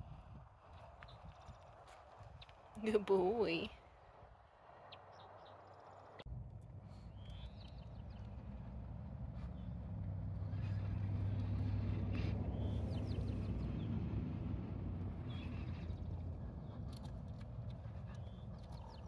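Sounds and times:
low engine drone: 0:06.3 - 0:18.6.

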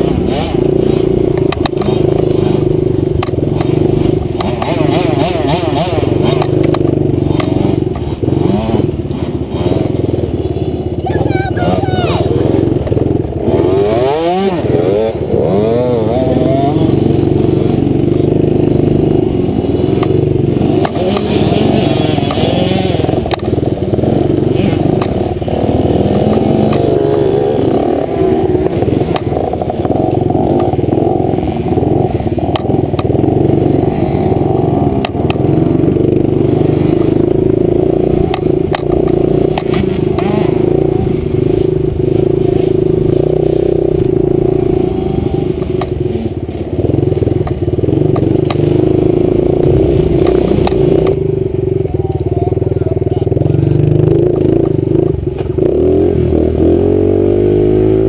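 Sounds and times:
sharp clicks and clatter: 0:00.0 - 0:08.3, 0:19.1 - 0:35.5, 0:36.4 - 0:44.8, 0:45.5 - 0:51.4
dirt bike engine revving: 0:00.0 - 0:58.0.

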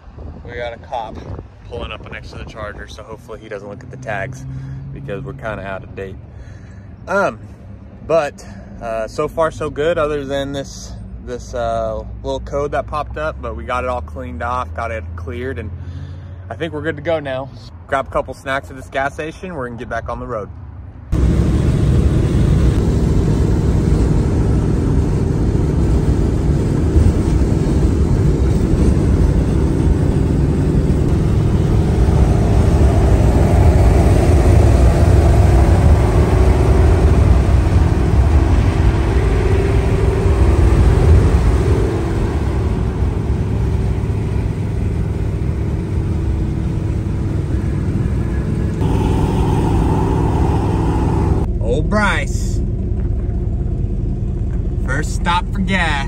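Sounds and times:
wind noise: 0:00.0 - 0:03.2
car engine and exhaust rumble: 0:00.0 - 0:56.0.

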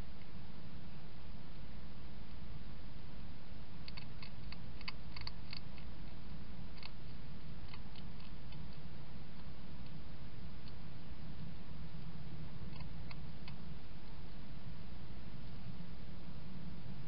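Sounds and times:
low rumble: 0:00.0 - 0:17.0
hedgehog chewing food: 0:03.8 - 0:10.0, 0:12.6 - 0:13.7.

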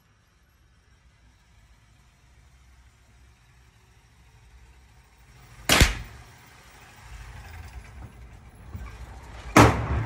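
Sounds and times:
rifle shots echoing indoors: 0:05.7 - 0:06.2.

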